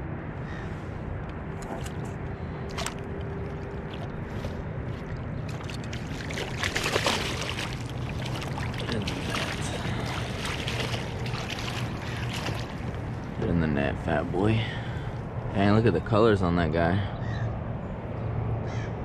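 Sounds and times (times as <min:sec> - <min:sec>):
water splashing and sloshing: 0:00.9 - 0:15.4.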